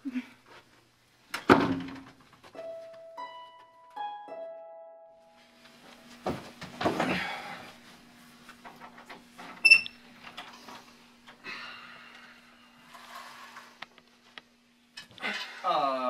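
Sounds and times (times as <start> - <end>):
faint steady hum: 5.2 - 16.0
thumps and rustling: 6.1 - 7.4.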